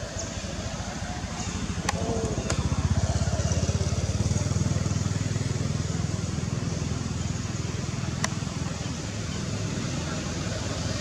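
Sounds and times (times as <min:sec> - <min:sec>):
engine running with low throb: 0:00.0 - 0:11.0.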